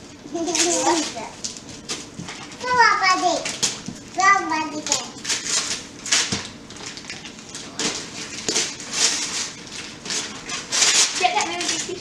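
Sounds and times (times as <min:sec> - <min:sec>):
tissue paper rustling: 0:08.3 - 0:12.0.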